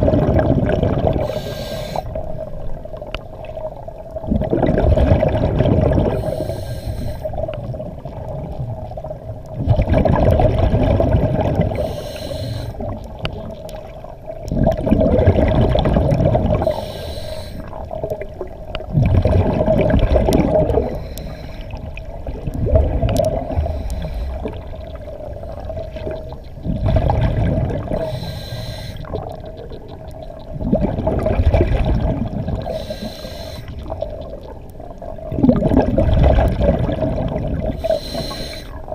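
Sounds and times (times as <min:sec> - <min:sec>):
gurgling exhaled bubbles: 0:00.0 - 0:06.6, 0:07.3 - 0:38.9
diver inhaling through breathing gear: 0:01.2 - 0:02.2, 0:06.2 - 0:07.4, 0:11.7 - 0:12.9, 0:16.6 - 0:17.8, 0:20.8 - 0:21.9, 0:23.4 - 0:24.6, 0:27.9 - 0:29.2, 0:32.6 - 0:33.8, 0:37.8 - 0:38.9.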